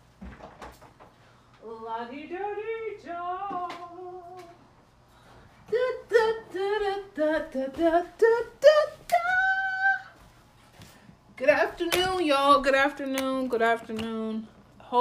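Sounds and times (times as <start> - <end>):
woman singing wordless tune: 1.6 - 4.6, 5.6 - 10.2.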